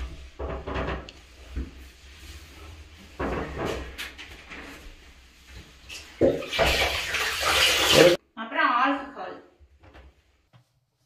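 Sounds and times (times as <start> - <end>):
cloth rubbing on glass: 0.0 - 6.2
cloth splashing into water: 6.2 - 8.2.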